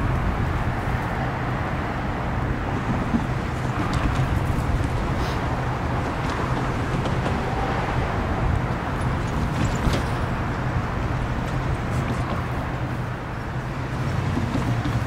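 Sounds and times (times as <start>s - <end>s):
low diesel engine drone: 0.0s - 15.0s
rail grinding hiss: 2.2s - 8.1s.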